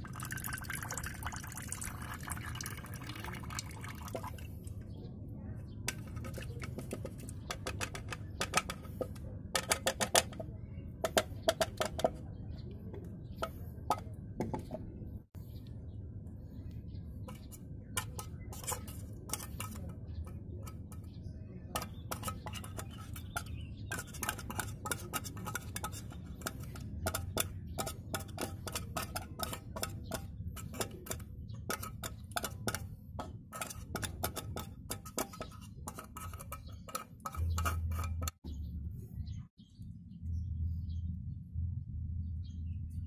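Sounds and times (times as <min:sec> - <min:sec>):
metal spoon scraping tin can: 0:05.9 - 0:10.4, 0:17.3 - 0:38.4.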